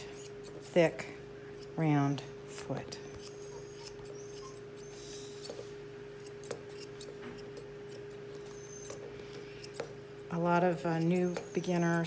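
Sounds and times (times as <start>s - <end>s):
steady low hum: 0.0s - 12.0s
scissors snipping hair: 6.2s - 9.0s, 9.6s - 10.0s, 10.7s - 12.0s.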